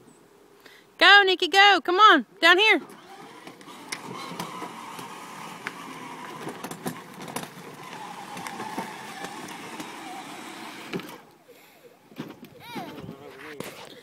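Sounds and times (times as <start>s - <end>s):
plastic wheels crackling on gravel: 2.8s - 11.4s
toy car electric motors whining: 2.8s - 11.5s.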